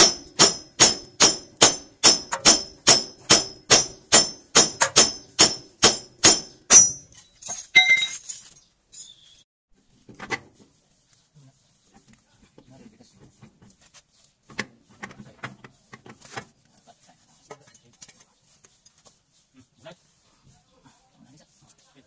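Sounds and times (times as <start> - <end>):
hammer striking steel: 0.0 - 7.2.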